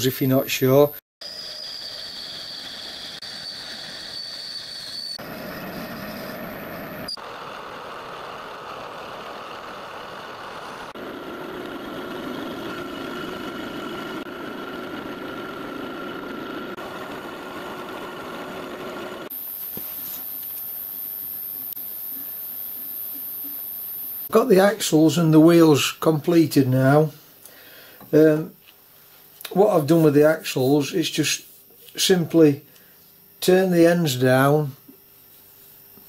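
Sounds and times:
thin high whine: 0.0 - 36.0.

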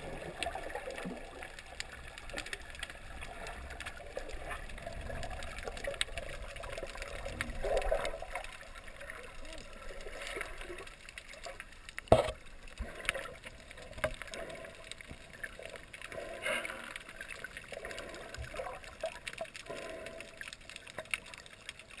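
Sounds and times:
underwater swishes and gurgles: 0.0 - 22.0.

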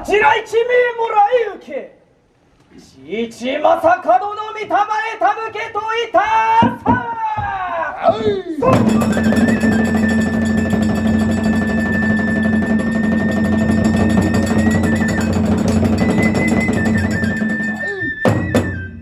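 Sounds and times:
fast drum beating: 8.6 - 18.8
bamboo flute high note: 8.7 - 19.0.

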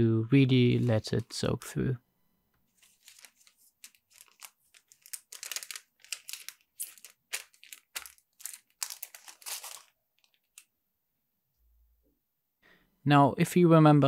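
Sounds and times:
plastic bag crinkling and rustling: 2.7 - 10.7.

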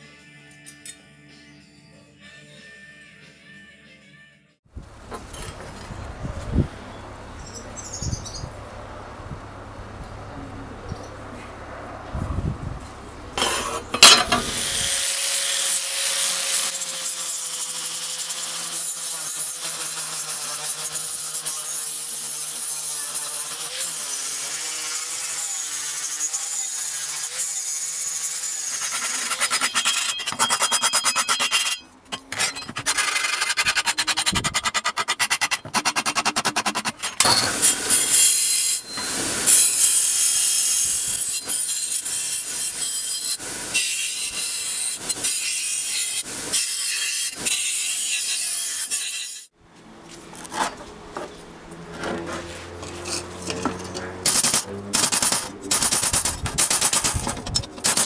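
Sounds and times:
angle grinder grinding metal: 13.4 - 49.5, 50.2 - 58.0.

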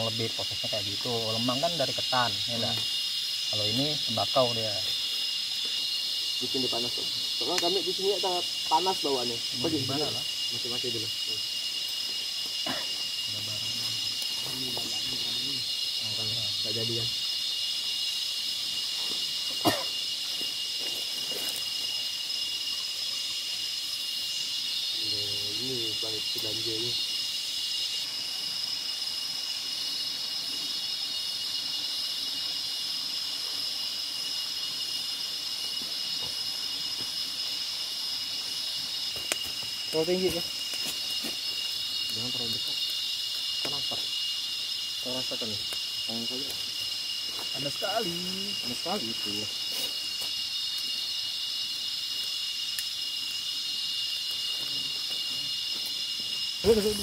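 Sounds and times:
insect chorus drone: 0.0 - 57.0.

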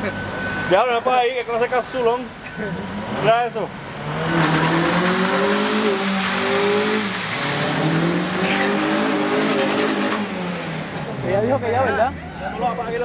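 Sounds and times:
car engine revving high: 2.7 - 11.8
tyres spinning and squealing: 4.2 - 10.7.

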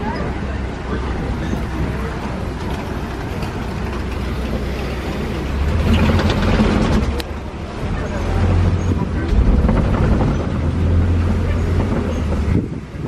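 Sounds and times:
road rumble: 0.0 - 13.0
truck engine running: 0.0 - 13.0
sharp rattles: 2.6 - 7.4, 8.6 - 12.6.

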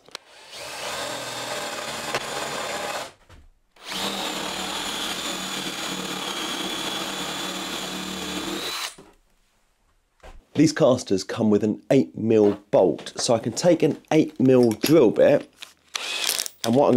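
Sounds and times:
drill motor whine and cutting: 0.2 - 3.1, 3.8 - 9.0, 16.0 - 16.6.

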